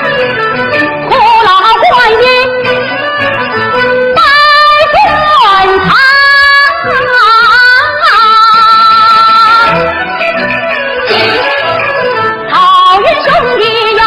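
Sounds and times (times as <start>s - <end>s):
instrumental accompaniment: 0.0s - 14.0s
woman singing opera aria: 1.1s - 2.5s, 4.2s - 9.8s, 12.5s - 14.0s.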